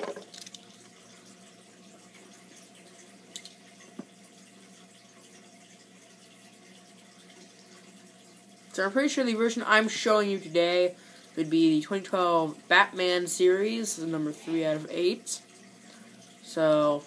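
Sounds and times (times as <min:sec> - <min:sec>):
faint hum and hiss: 0:00.0 - 0:17.0.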